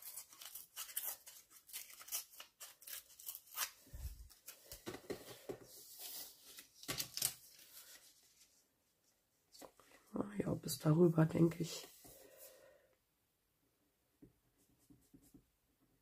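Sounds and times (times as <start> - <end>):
paper tearing by hand: 0.0 - 4.0
paper rustling: 0.0 - 8.7.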